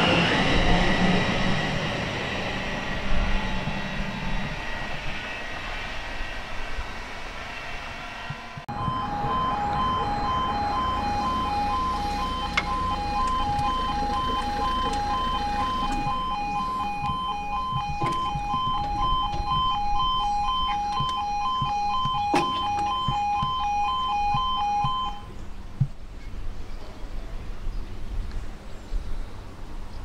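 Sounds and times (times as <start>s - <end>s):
level crossing alarm two-tone: 8.7s - 25.3s.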